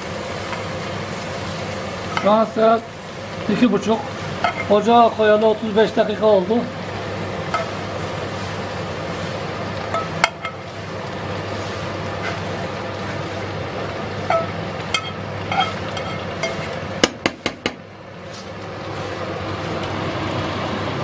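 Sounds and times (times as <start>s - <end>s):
cabbage sizzling in a pan: 0.0s - 21.0s
metal spoon scraping a pan: 4.4s - 4.8s, 12.2s - 12.5s, 14.2s - 16.8s.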